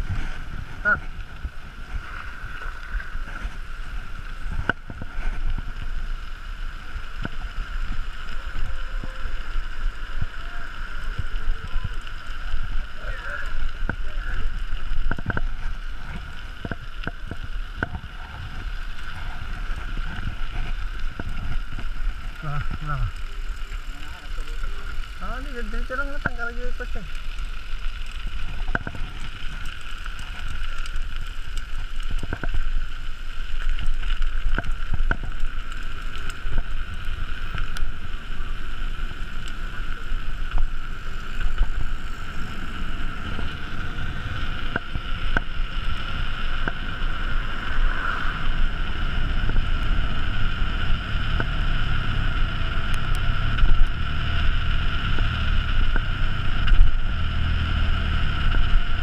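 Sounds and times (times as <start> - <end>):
wind on microphone: 0.0 - 6.1, 33.9 - 59.0
bike tyres rolling buzz: 0.0 - 59.0.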